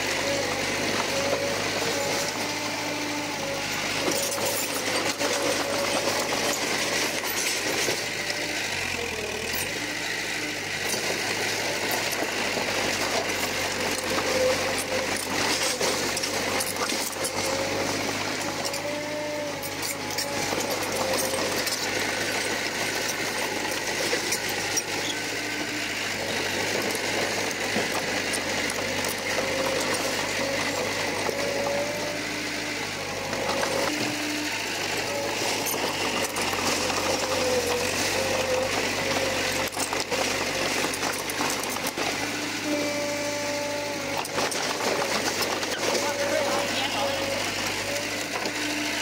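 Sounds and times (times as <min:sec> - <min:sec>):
bulldozer diesel engine: 0:00.0 - 0:49.0
pitched machine squeals: 0:00.2 - 0:09.9, 0:13.2 - 0:22.4, 0:23.0 - 0:25.4, 0:29.0 - 0:49.0
machine rattling: 0:10.8 - 0:25.2, 0:33.2 - 0:42.7.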